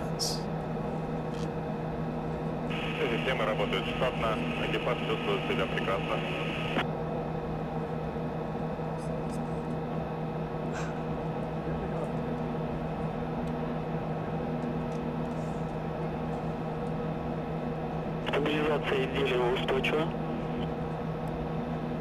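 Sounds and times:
steady hum with hiss: 0:02.6 - 0:06.8.

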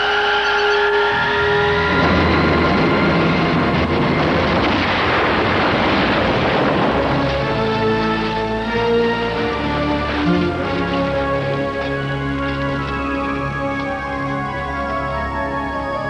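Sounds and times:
dramatic orchestral music: 0:00.0 - 0:16.0
explosion with rumbling roar: 0:01.2 - 0:13.6.

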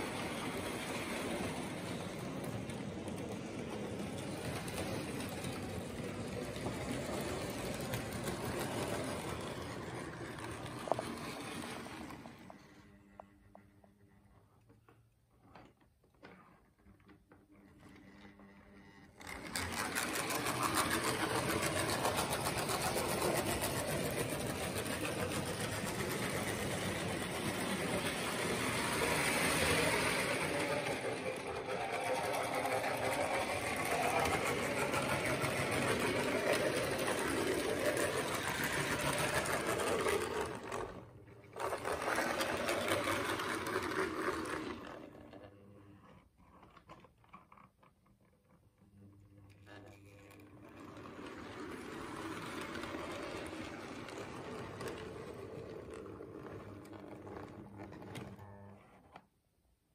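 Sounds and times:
model train whirring and rattling: 0:00.0 - 0:13.2, 0:17.9 - 0:45.5, 0:49.7 - 0:58.7.

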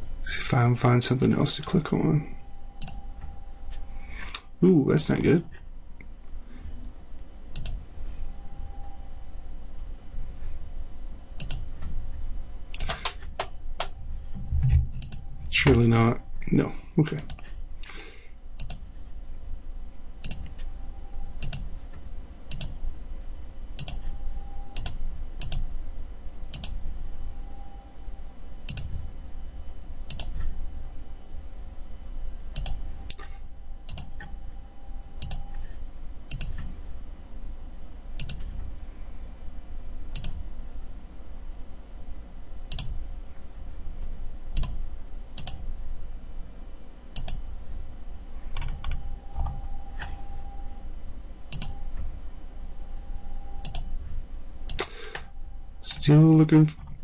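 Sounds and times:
low steady hum: 0:00.0 - 0:57.0
computer mouse clicking: 0:02.8 - 0:03.0, 0:07.5 - 0:07.8, 0:11.4 - 0:11.7, 0:12.7 - 0:13.9, 0:15.0 - 0:15.2, 0:18.6 - 0:18.9, 0:20.2 - 0:20.7, 0:21.4 - 0:21.7, 0:22.5 - 0:22.8, 0:23.8 - 0:24.0, 0:24.8 - 0:25.7, 0:26.5 - 0:26.8, 0:28.7 - 0:28.9, 0:30.1 - 0:30.5, 0:32.6 - 0:33.3, 0:35.2 - 0:35.6, 0:36.3 - 0:36.7, 0:38.2 - 0:38.5, 0:40.1 - 0:40.4, 0:42.7 - 0:43.0, 0:44.6 - 0:44.8, 0:45.4 - 0:45.6, 0:47.1 - 0:47.4, 0:51.5 - 0:51.8, 0:53.6 - 0:53.9.

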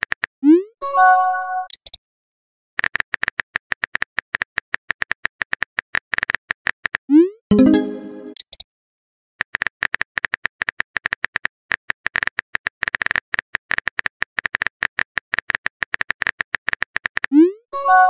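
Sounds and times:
multi-tone chime: 0:07.5 - 0:08.4.

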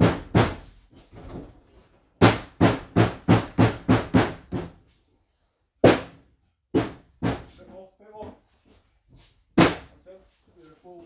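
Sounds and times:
hammer knocking wooden panels: 0:00.0 - 0:01.6, 0:02.2 - 0:04.8, 0:05.8 - 0:08.4, 0:09.6 - 0:10.0.

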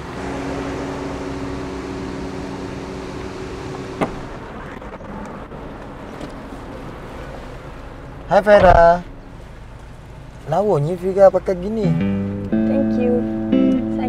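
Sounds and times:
car engine idling: 0:00.0 - 0:14.0
car door click: 0:04.0 - 0:04.3.

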